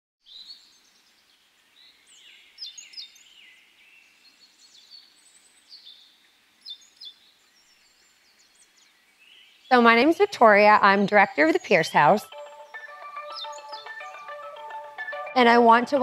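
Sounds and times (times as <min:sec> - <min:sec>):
songbirds chirping and calling: 0:00.2 - 0:16.0
faint steady hiss: 0:00.3 - 0:12.7.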